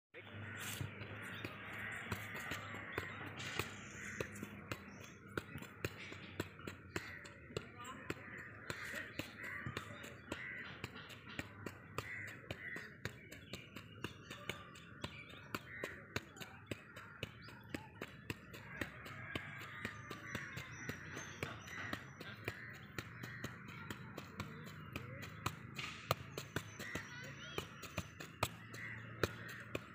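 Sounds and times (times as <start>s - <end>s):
football thudding on foot: 0.9s - 29.9s.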